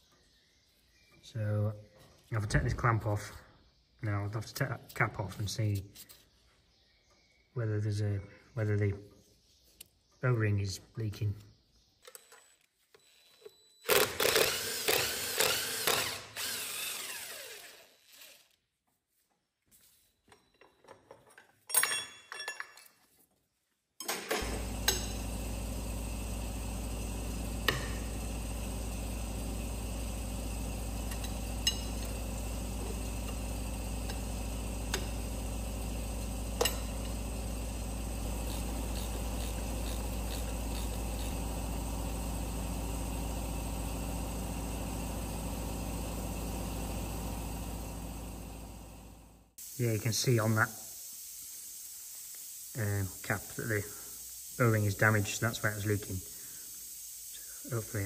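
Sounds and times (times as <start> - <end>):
power tool running in bursts: 13.8 - 18.5, 24.4 - 49.8.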